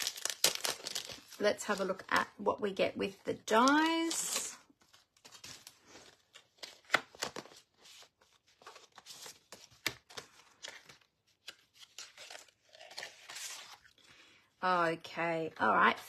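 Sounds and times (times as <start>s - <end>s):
plastic packaging crinkling: 0.0s - 2.2s.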